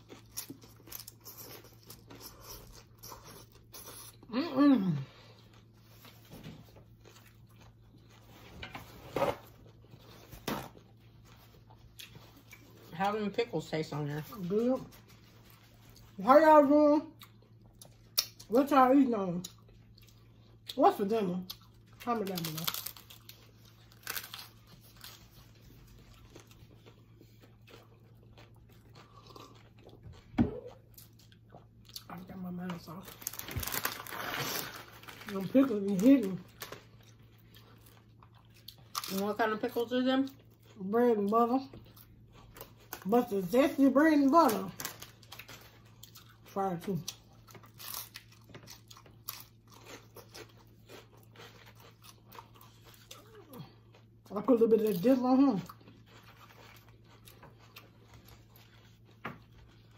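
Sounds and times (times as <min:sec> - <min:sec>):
crunching taco shell: 0:21.5 - 0:30.1, 0:33.1 - 0:35.4, 0:47.1 - 0:54.2, 0:55.0 - 0:59.9.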